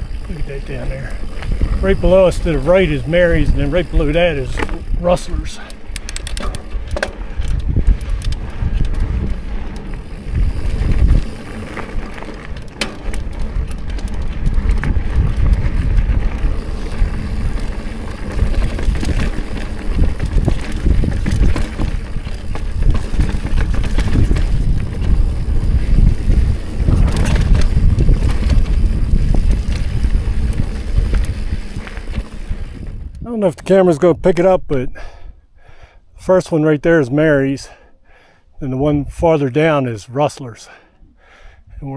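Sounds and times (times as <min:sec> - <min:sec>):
wind on microphone: 0:00.0 - 0:12.6, 0:13.2 - 0:33.4
tyres rolling over dirt and rocks: 0:00.0 - 0:33.1
bike rattling over bumps: 0:00.0 - 0:33.2.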